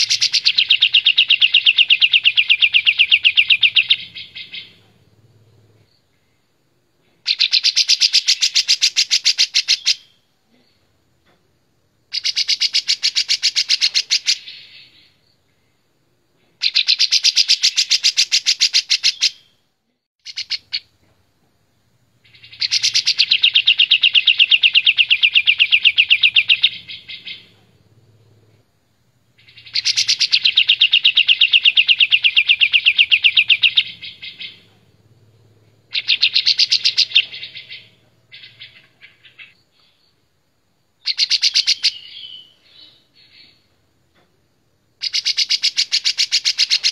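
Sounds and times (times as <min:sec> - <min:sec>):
bulbul singing rapid trills: 0:00.0 - 0:05.7, 0:12.1 - 0:15.1, 0:20.2 - 0:20.9, 0:22.2 - 0:28.4, 0:29.4 - 0:39.6, 0:41.0 - 0:43.6, 0:45.0 - 0:46.9.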